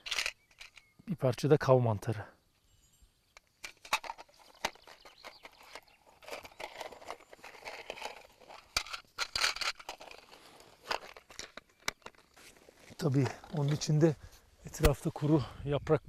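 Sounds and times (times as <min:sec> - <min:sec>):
rustling: 0:03.6 - 0:15.3.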